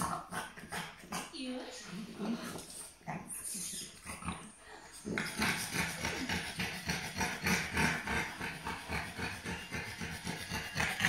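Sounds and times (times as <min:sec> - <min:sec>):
dogs panting hard: 0:03.8 - 0:11.0.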